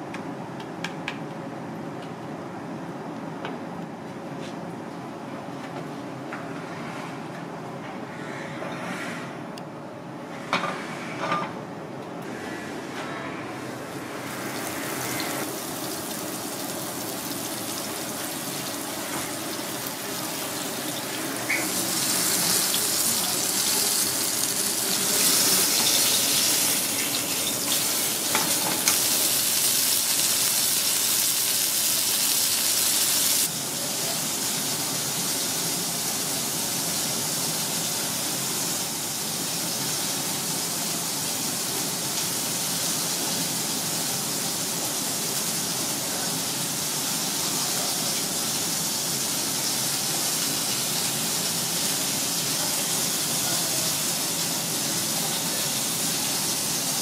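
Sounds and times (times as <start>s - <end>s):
oil sizzling in wok: 14.0s - 57.0s.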